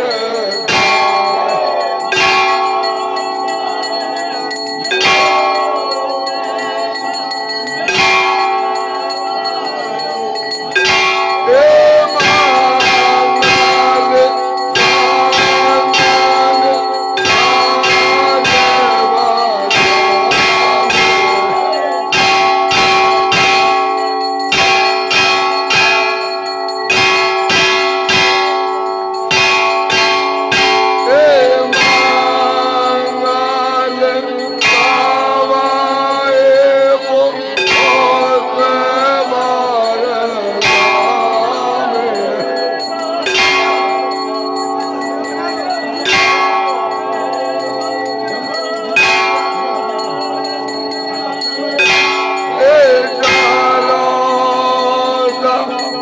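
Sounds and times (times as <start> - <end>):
temple bells ringing: 0.0 - 56.0.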